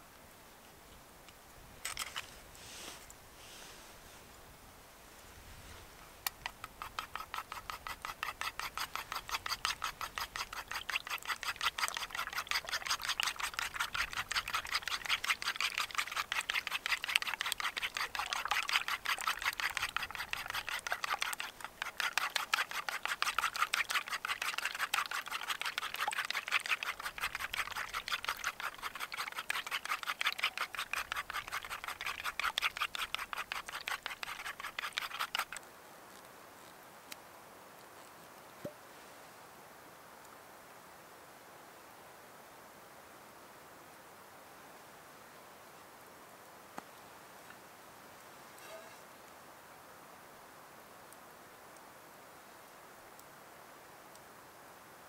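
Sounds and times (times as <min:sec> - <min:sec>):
fork whisking eggs in wooden bowl: 0:06.2 - 0:35.6.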